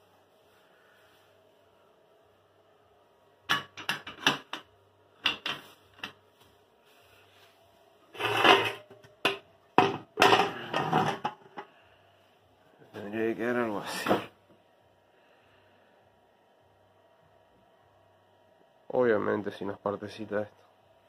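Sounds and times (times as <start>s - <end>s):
metal scraping on tiled floor: 8.1s - 9.0s, 10.2s - 11.6s.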